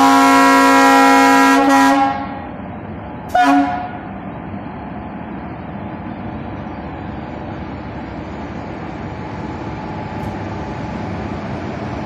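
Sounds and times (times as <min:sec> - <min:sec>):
locomotive horn blasts: 0:00.0 - 0:02.5, 0:03.3 - 0:04.1
locomotive rumbling past: 0:00.0 - 0:12.0.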